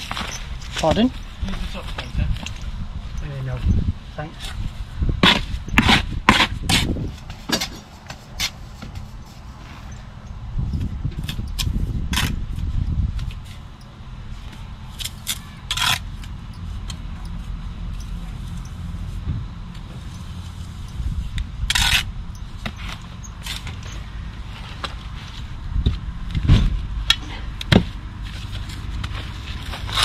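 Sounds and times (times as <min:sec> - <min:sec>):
steady low rumble: 0:00.0 - 0:30.0
trowel scraping on mortar: 0:05.2 - 0:10.0.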